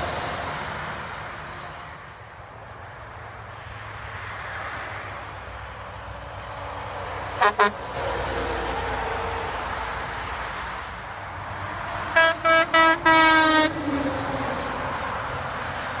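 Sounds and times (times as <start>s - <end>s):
passing truck and traffic: 0.0s - 16.0s
truck air horn blasts: 7.4s - 8.0s, 12.1s - 14.0s.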